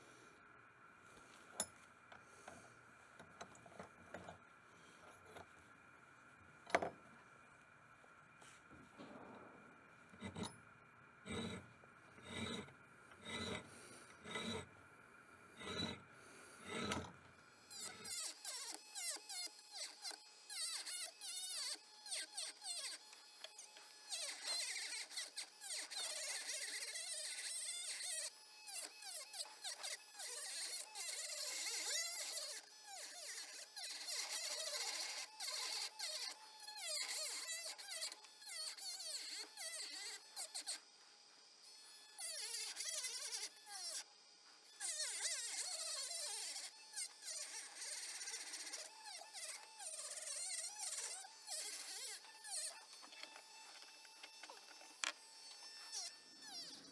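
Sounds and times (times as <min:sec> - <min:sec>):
rotary tool grinding whine: 0:01.0 - 0:56.9
file rasping on brass: 0:10.2 - 0:10.5, 0:11.2 - 0:14.8, 0:15.6 - 0:40.8, 0:44.8 - 0:53.9.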